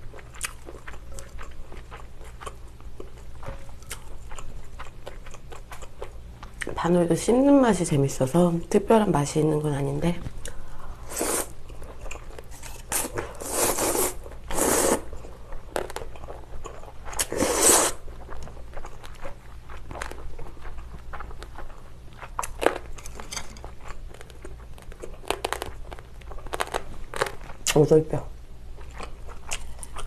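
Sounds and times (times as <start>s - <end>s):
chewing with wet smacks: 0.0s - 6.8s, 18.1s - 22.9s
slurping noodles: 11.1s - 11.5s, 12.9s - 15.1s, 17.2s - 18.0s.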